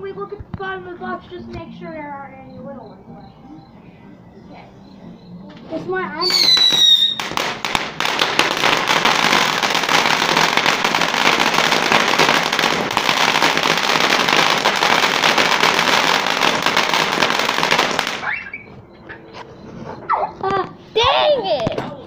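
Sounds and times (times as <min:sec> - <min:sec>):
firework hissing and crackling: 0:06.2 - 0:18.3
firework pops: 0:06.2 - 0:18.3.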